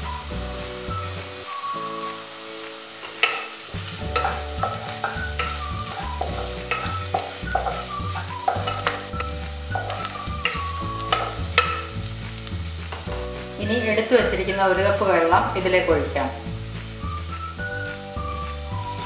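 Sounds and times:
background music with bass: 0.0s - 19.0s
light sizzle: 0.0s - 19.0s
wooden spatula scraping a pan: 2.0s - 13.6s.

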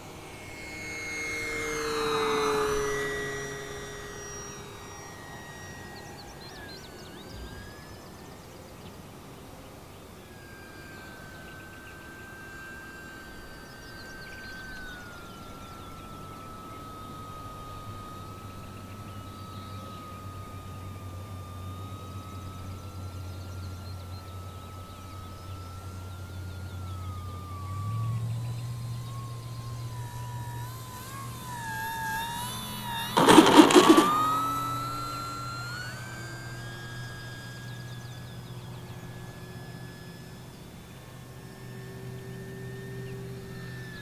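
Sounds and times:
model plane propeller whine: 0.0s - 44.0s
brief rattling burst: 31.6s - 35.2s.

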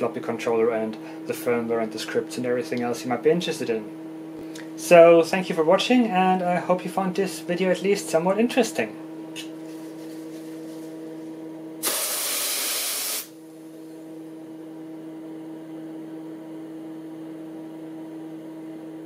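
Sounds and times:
electrical hum: 0.0s - 19.0s
aerosol spray hiss: 11.8s - 13.3s.

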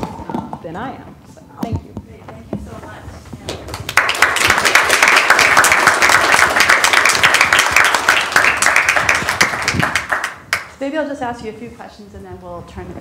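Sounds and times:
audience applauding: 3.6s - 10.8s.

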